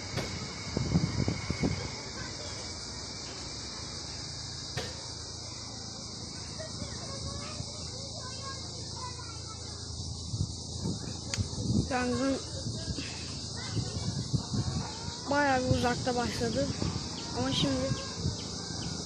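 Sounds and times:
wind gusts on microphone: 0:00.0 - 0:02.5, 0:10.0 - 0:19.0
high-pitched insect drone: 0:00.0 - 0:19.0.

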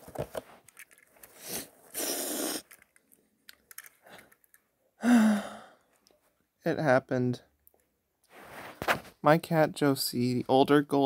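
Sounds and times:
person sniffing: 0:01.3 - 0:02.8
person sobbing: 0:05.0 - 0:05.7.

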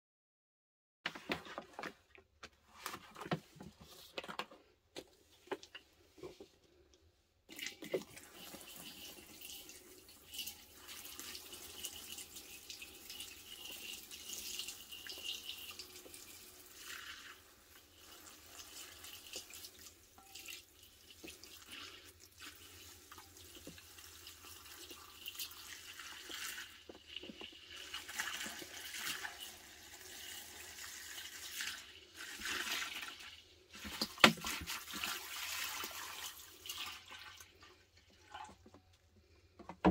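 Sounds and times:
liquid pouring and splashing: 0:07.5 - 0:38.7.

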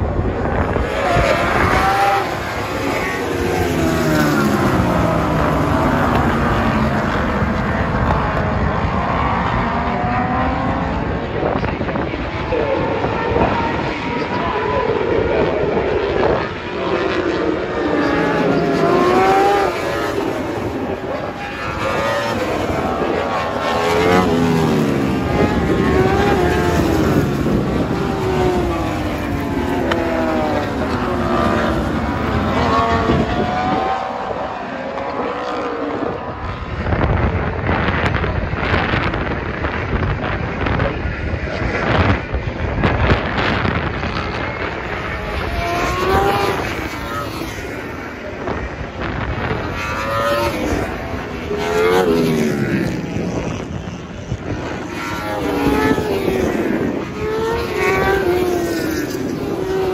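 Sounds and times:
superbike engines revving: 0:00.0 - 0:59.9.

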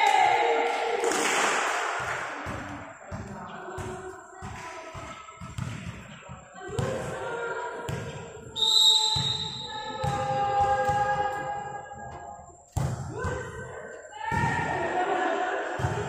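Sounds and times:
volleyball thuds: 0:02.0 - 0:07.2, 0:07.9 - 0:13.6.

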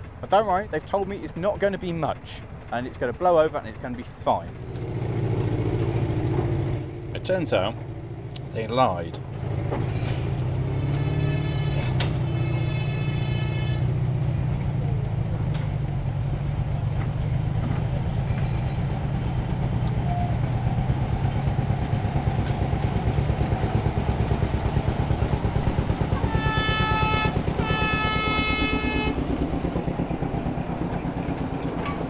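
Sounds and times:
locomotive engine running: 0:00.0 - 0:32.0
locomotive horn blasts: 0:09.9 - 0:14.4, 0:25.7 - 0:29.6.

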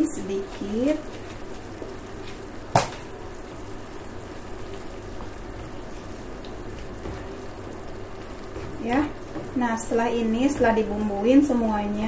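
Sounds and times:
mushrooms sizzling in pan: 0:00.0 - 0:12.0.

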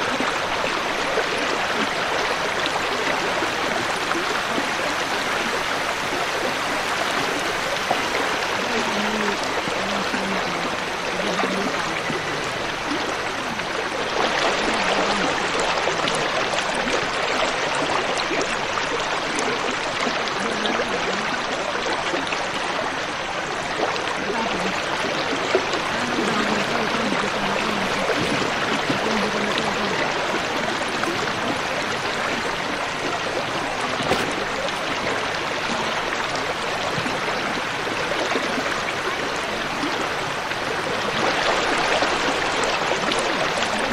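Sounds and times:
river water rushing over rocks: 0:00.0 - 0:43.9.

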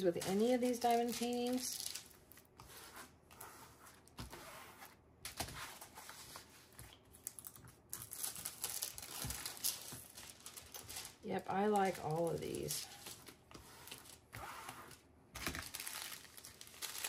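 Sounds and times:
plastic film rustling: 0:00.0 - 0:02.2, 0:07.2 - 0:14.2, 0:14.9 - 0:17.0.

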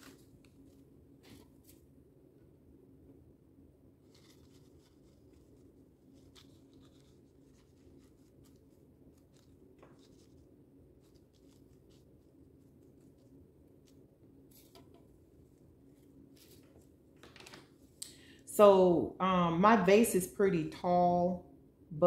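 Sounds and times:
paper and paintbrush rustles: 0:00.0 - 0:01.9, 0:04.0 - 0:17.9
low room hum: 0:00.0 - 0:22.0.

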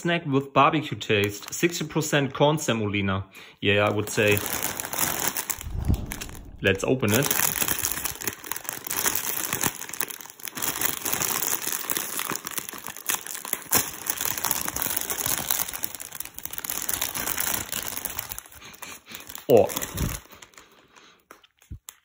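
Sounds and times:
plastic bag crinkling: 0:08.3 - 0:18.6.

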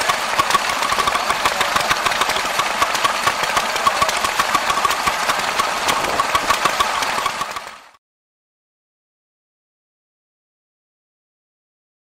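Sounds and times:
mechanical clicking: 0:00.0 - 0:07.9
stationary engines running: 0:00.0 - 0:08.0.

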